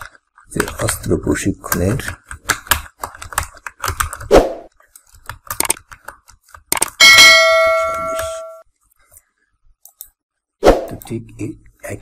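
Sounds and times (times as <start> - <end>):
keyboard typing clicks: 5.2 - 7.0
loud bell ding: 7.0 - 8.6.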